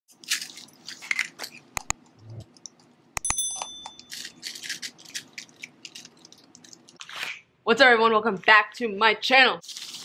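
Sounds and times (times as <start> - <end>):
mouse clicks: 1.8 - 2.0
short high bell ding: 3.2 - 4.1.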